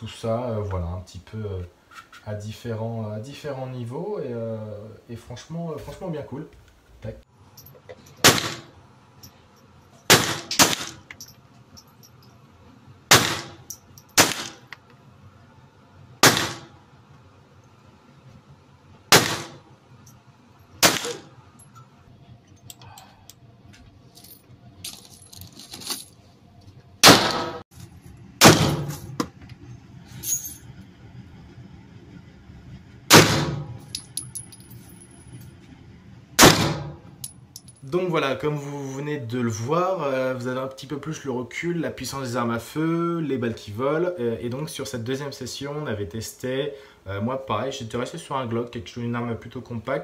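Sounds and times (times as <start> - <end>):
handgun shots with echo: 8.2 - 8.7, 10.1 - 11.0, 13.1 - 13.6, 14.2 - 14.6, 16.2 - 16.7, 19.1 - 19.6, 20.8 - 21.3, 27.0 - 27.6, 28.4 - 28.9, 36.4 - 37.0
faint metallic clinks: 11.1 - 12.4, 21.6 - 23.4, 37.2 - 37.9.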